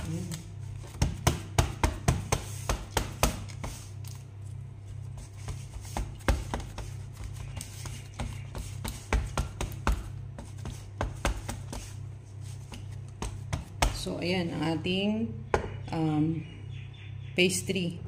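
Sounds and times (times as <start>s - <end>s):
low steady hum: 0.0s - 18.0s
hand tapping pie pan: 5.9s - 12.0s.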